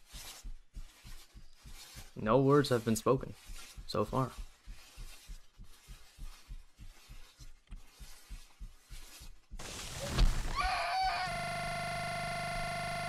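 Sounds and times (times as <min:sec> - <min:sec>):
loud hiss: 0:09.6 - 0:10.6.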